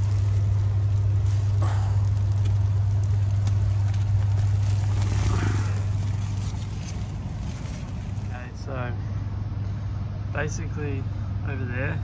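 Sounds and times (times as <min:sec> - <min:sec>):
cables rustling: 0:00.0 - 0:08.8
air conditioning humming: 0:00.0 - 0:12.0.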